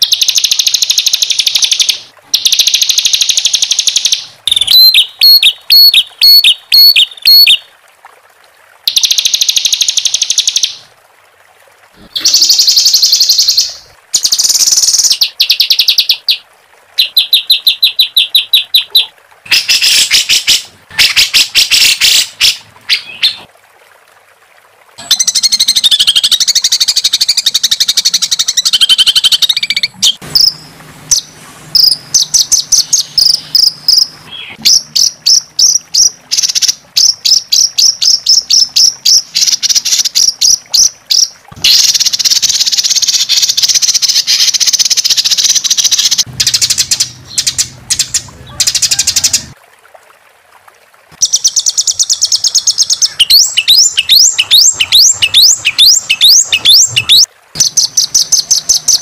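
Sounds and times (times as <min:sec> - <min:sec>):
songbird trills and warbles: 0:00.0 - 0:07.6, 0:51.2 - 0:59.0.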